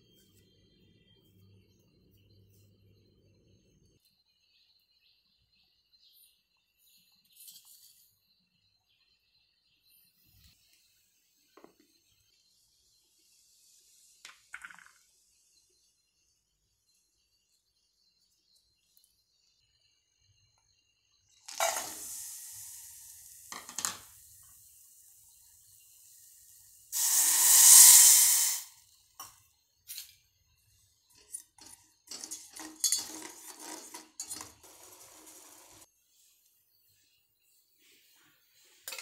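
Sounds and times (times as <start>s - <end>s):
pieces clattering into steel pot: 21.5s - 24.2s, 31.2s - 35.8s
water pouring splash: 27.0s - 28.6s.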